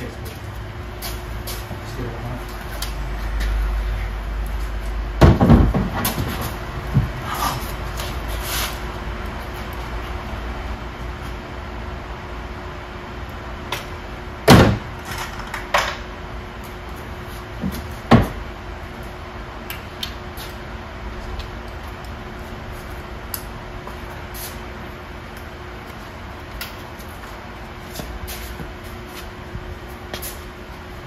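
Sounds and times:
steady hum: 0.0 - 31.0
sharp knocks: 5.2 - 7.2.

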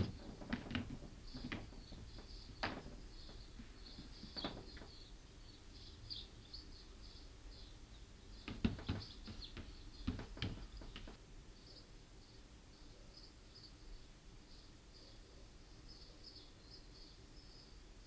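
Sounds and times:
sharp knocks and taps: 0.0 - 5.0, 8.4 - 11.2.

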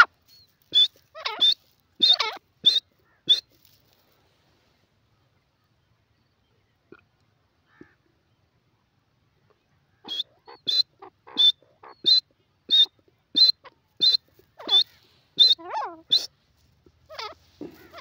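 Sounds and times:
francolin calling: 0.0 - 3.6, 9.8 - 18.0.

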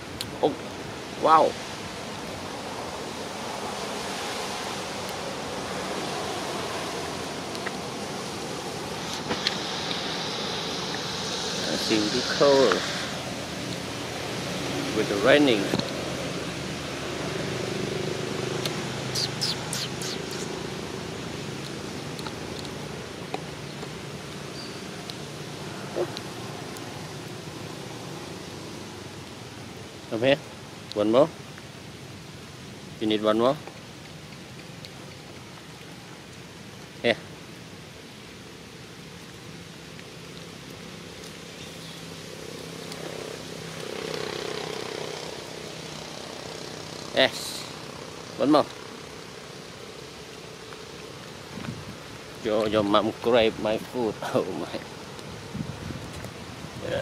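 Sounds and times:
low outdoor hum: 0.0 - 33.0
engine drone: 6.2 - 23.2
baby monkey squeaking: 19.1 - 20.6.

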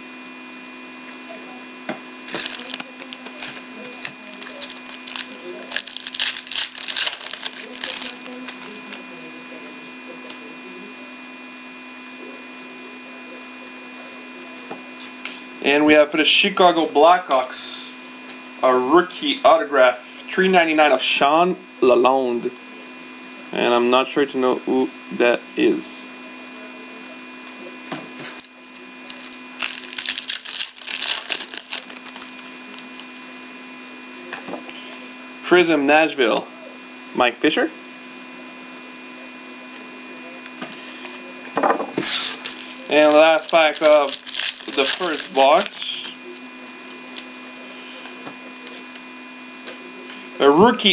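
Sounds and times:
electrical hum: 0.0 - 50.9
foil wrapper crinkling and tearing: 2.2 - 9.2, 28.2 - 33.1, 42.0 - 49.0
trading cards handled: 2.3 - 9.0, 41.9 - 45.8.

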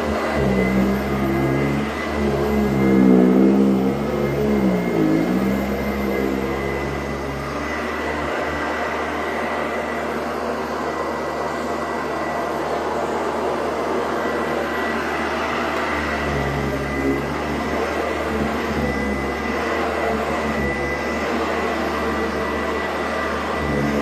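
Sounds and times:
vacuum cleaner motor whine: 0.0 - 24.0.

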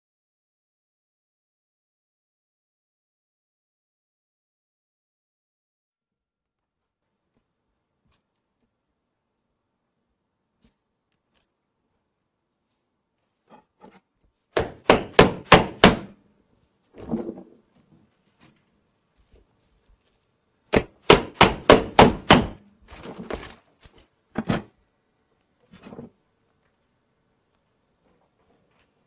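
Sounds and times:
knife chopping on glass: 20.8 - 22.6.

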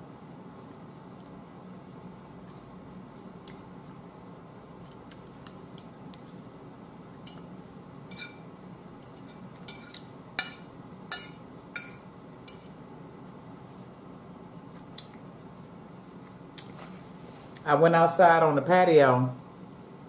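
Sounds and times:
metal fork clinking on plate: 9.0 - 12.6.

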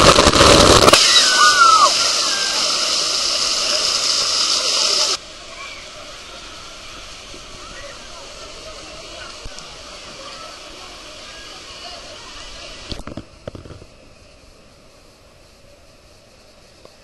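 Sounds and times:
water splashing: 0.0 - 13.7
crowd at a pool: 0.0 - 17.0
rushing water hiss: 0.0 - 17.0
brief falling cries: 0.9 - 2.8.

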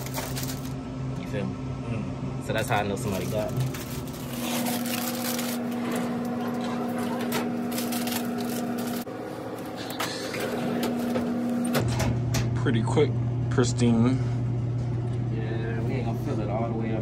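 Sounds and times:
plastic snack bags crinkling: 0.0 - 0.8, 2.6 - 5.7, 7.7 - 9.1
vending machine electrical hum: 0.0 - 17.0.

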